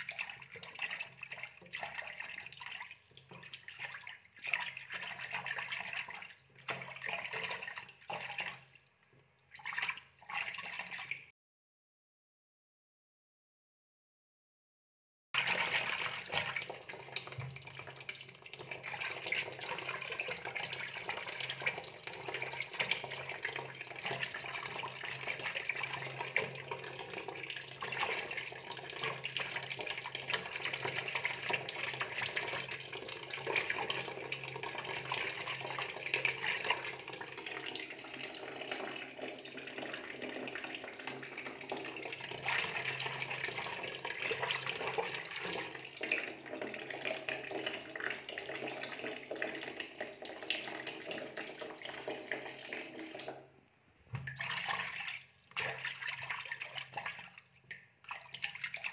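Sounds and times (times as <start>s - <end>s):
running water splashing: 54.1s - 58.9s.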